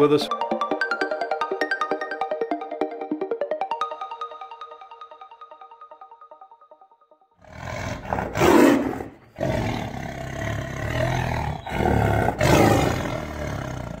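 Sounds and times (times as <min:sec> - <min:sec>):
tiger roaring and growling: 0:07.4 - 0:14.0.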